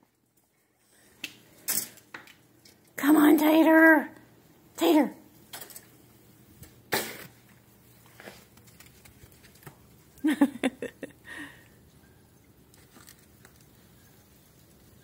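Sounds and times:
person laughing: 10.2 - 11.6.

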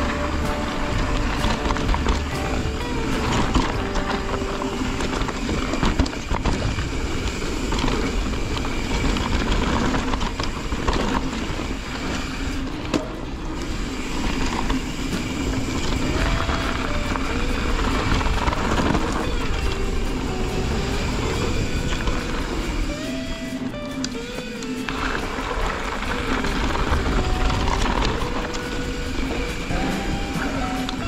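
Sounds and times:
bike knocking and rattling: 0.0 - 31.0
bike tyre and wind rush: 0.0 - 31.0.

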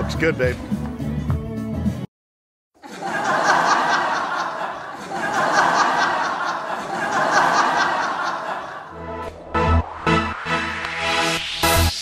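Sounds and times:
people laughing: 2.8 - 9.0.

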